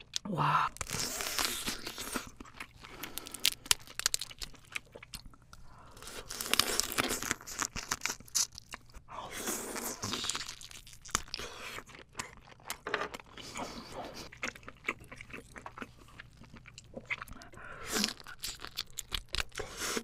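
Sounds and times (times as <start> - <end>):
person chewing crunchy crab: 0.0 - 20.0.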